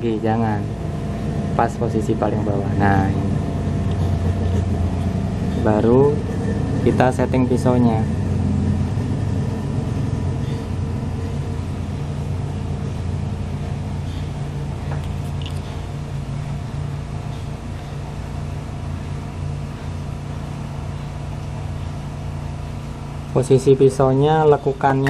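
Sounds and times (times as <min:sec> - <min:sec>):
electric motor hum: 0:00.6 - 0:23.2
small metal parts clicking: 0:15.0 - 0:15.7.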